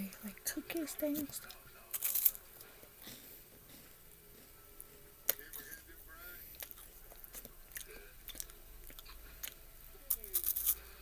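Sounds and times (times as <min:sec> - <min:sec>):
crunching wafer cookie: 0:01.4 - 0:02.8, 0:06.6 - 0:11.0.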